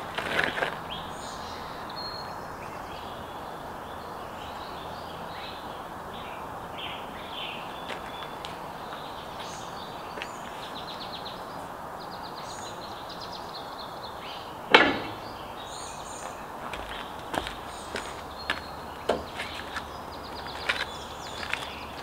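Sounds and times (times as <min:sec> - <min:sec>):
birds chirping: 0:00.0 - 0:22.0
sharp loud knock: 0:14.7 - 0:15.3.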